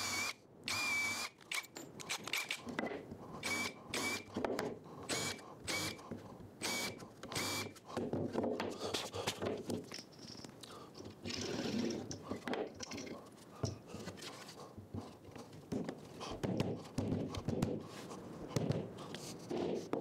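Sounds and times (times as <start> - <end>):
wooden knocks and thuds: 8.0 - 8.8, 15.7 - 17.8.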